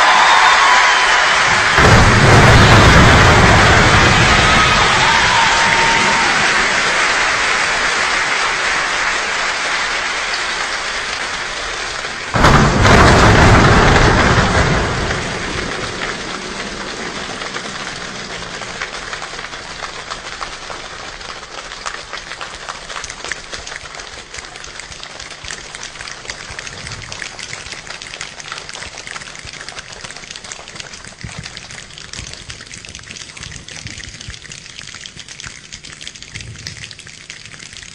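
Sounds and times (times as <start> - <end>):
body percussion rain patter: 0.0 - 37.9
loud thunder-like burst: 0.2 - 7.4, 12.3 - 19.2.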